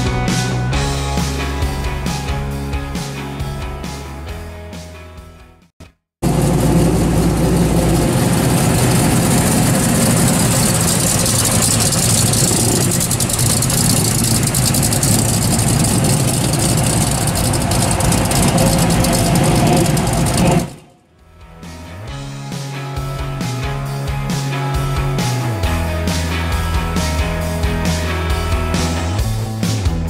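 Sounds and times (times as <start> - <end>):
car engine driving past: 6.2 - 21.0.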